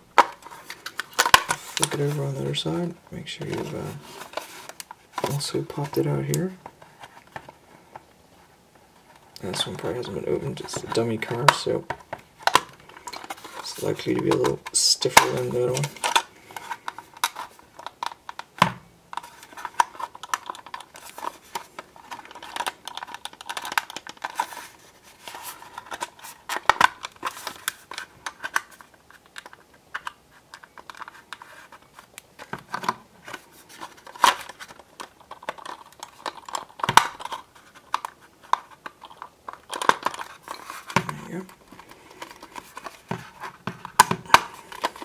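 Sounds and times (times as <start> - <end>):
plastic scratching and scraping: 0.2 - 8.0, 9.0 - 18.5, 19.1 - 45.0.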